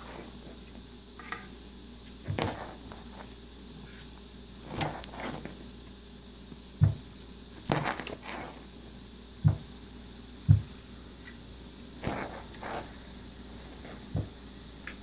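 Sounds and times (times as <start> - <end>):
dull thumps: 6.8 - 8.6, 9.4 - 9.7, 10.4 - 10.8, 13.7 - 14.4.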